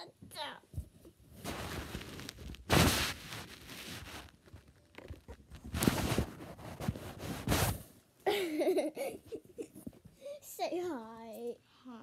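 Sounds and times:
cloth rubbing on microphone: 1.3s - 8.0s.

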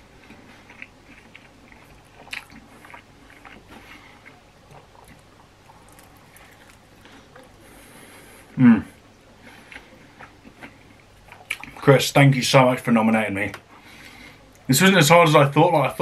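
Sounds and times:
person chewing with wet mouth clicks: 0.3s - 7.6s, 9.7s - 11.8s.

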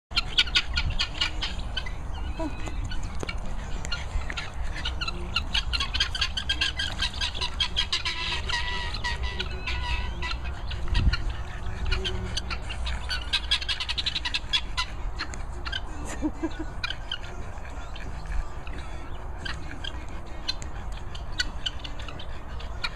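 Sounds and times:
guineafowl calling: 0.1s - 22.9s
wind rumbling on microphone: 0.2s - 13.2s.

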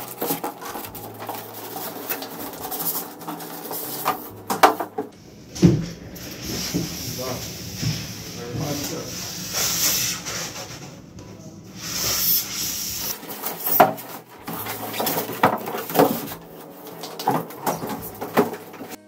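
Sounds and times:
cardboard and foam rustling: 0.0s - 10.9s, 11.9s - 19.0s
foam knocking and scraping: 0.0s - 10.9s, 11.9s - 19.0s.

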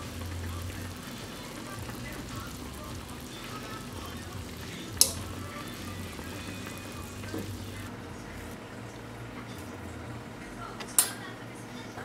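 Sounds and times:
water boiling with bubbling hiss: 0.0s - 8.6s.

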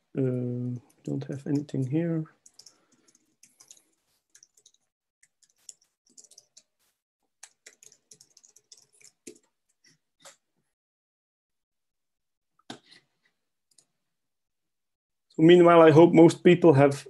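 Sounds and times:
computer keyboard keystrokes: 2.4s - 6.7s, 7.4s - 9.5s.

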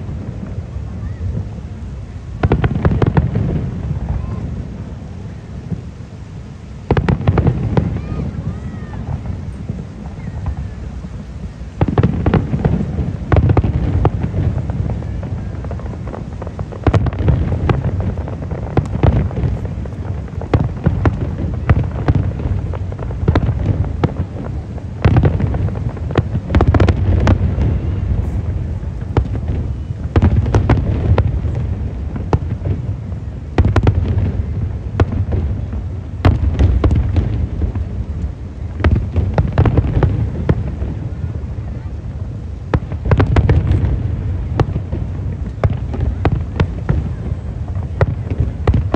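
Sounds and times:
continuous low rumble: 0.0s - 48.9s
fireworks booming and crackling: 0.0s - 48.9s
firework shells bursting: 11.8s - 24.4s.

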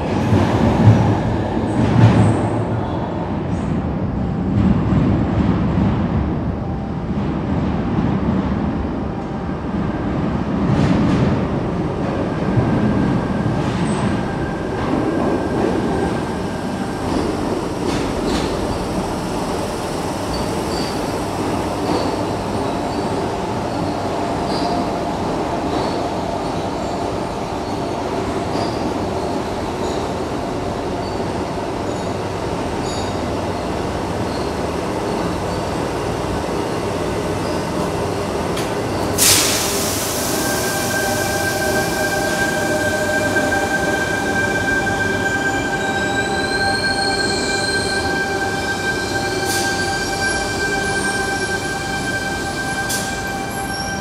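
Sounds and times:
electric train rumbling: 0.0s - 54.0s
high brake squeals: 39.0s - 54.0s.

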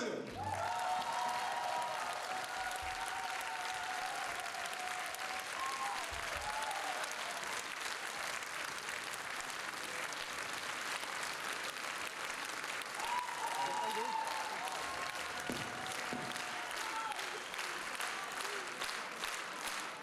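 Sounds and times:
audience applauding: 0.0s - 20.0s.

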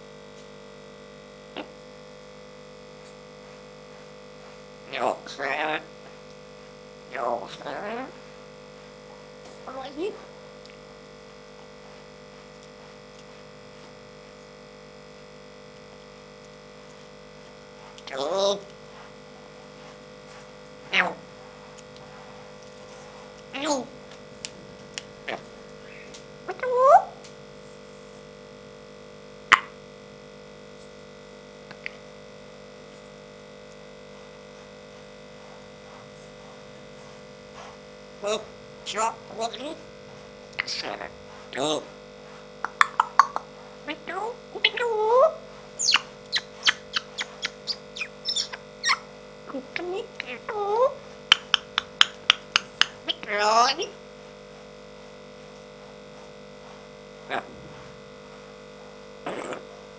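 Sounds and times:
electrical mains hum: 0.0s - 59.9s
person talking: 9.6s - 10.3s, 18.0s - 18.7s, 23.5s - 24.0s, 26.5s - 27.1s, 38.2s - 39.9s, 40.6s - 41.9s, 43.8s - 45.4s, 49.5s - 51.0s, 53.0s - 54.0s.

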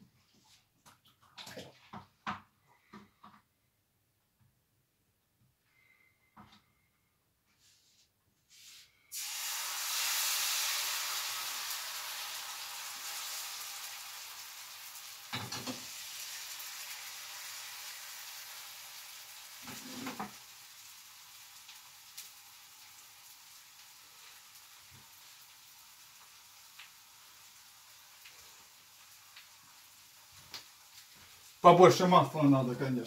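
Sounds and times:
batter sizzling in a frying pan: 9.1s - 33.0s.

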